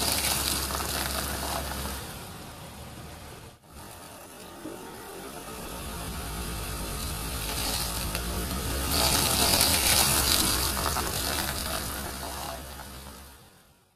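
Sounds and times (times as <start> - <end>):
tyre crushing squishy ball: 0.0 - 2.0, 7.0 - 13.0
car engine humming: 0.0 - 13.8.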